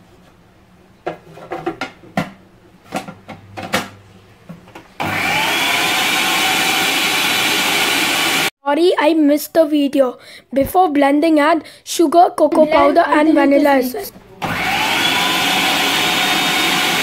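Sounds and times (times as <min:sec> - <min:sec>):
food processor motor whine: 0:05.0 - 0:08.5, 0:14.4 - 0:17.0.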